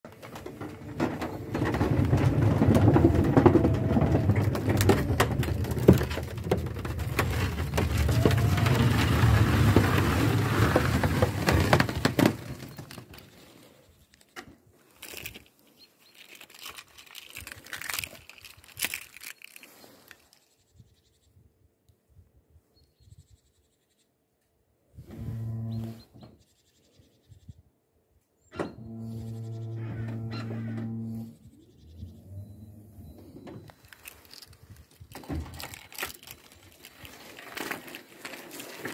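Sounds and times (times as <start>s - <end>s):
wheelchair rumbling over wooden deck: 0.0s - 13.6s, 28.7s - 31.4s, 32.0s - 38.9s
clicks and knocks: 0.1s - 13.2s.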